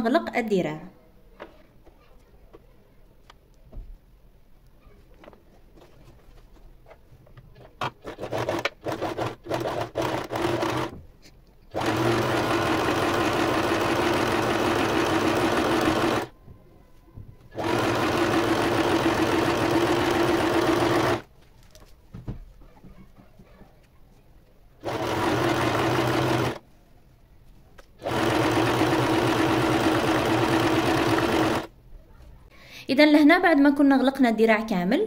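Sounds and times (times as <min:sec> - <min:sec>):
sewing machine stitching: 0:07.8 - 0:10.9, 0:11.7 - 0:16.3, 0:17.5 - 0:21.2, 0:24.8 - 0:26.6, 0:28.0 - 0:31.7.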